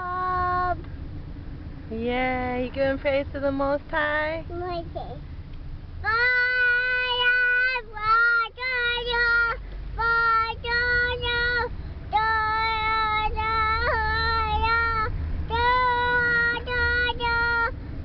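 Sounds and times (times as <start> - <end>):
low car rumble: 0.0 - 18.0
toddler girl singing: 6.0 - 17.7.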